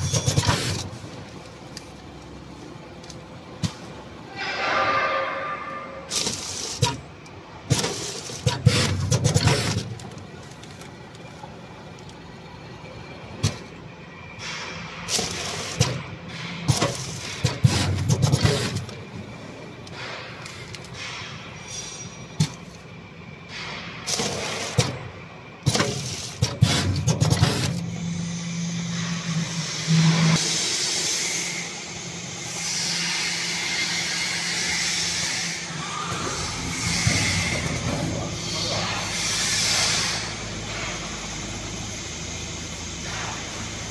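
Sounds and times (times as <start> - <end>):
machine clicks and clunks: 0.0 - 2.4, 6.1 - 12.2, 14.4 - 19.1, 19.8 - 28.0
air hiss bursts: 27.4 - 41.0
steady machine hiss: 27.4 - 43.9.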